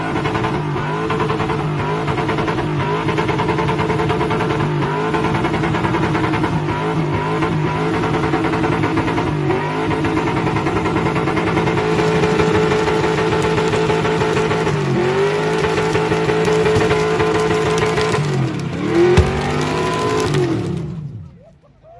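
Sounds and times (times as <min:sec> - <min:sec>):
car engine revving high: 0:00.0 - 0:21.0
tyre spinning on pavement: 0:10.3 - 0:21.2.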